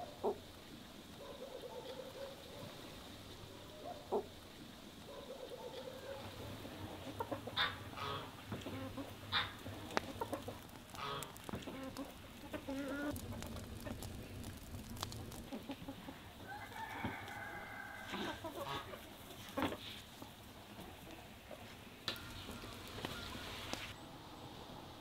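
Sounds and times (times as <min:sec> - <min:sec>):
chickens clucking: 0:00.0 - 0:00.5, 0:01.2 - 0:24.0
rooster crowing: 0:16.3 - 0:18.9, 0:22.1 - 0:23.9.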